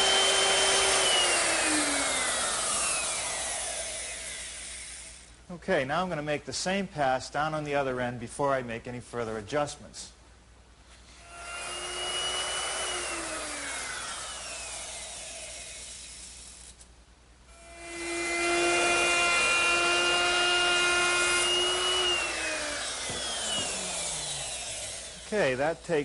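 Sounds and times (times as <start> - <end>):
router motor whine: 0.0 - 5.2, 11.2 - 16.7, 17.6 - 25.6.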